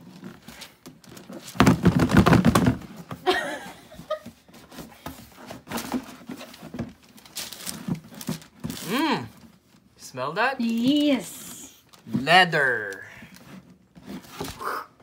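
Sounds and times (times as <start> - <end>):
cardboard box and paper rustling: 3.9 - 9.9, 10.6 - 14.6.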